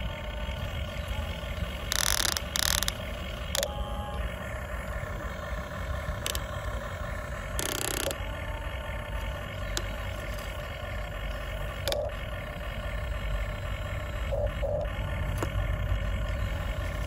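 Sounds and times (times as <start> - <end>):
toy excavator motors whining: 0.0 - 17.0
sharp clicks: 1.8 - 3.7, 6.2 - 6.6, 7.5 - 8.3, 11.5 - 12.2.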